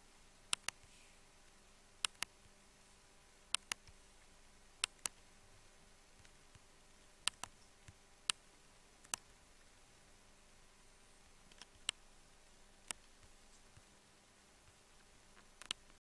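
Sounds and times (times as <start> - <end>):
faint steady hum: 0.0 - 16.0
computer mouse clicking: 0.5 - 0.9, 2.0 - 2.4, 3.5 - 4.0, 4.8 - 5.2, 6.2 - 8.4, 9.0 - 9.3, 11.5 - 12.0, 12.8 - 13.8, 15.5 - 16.0.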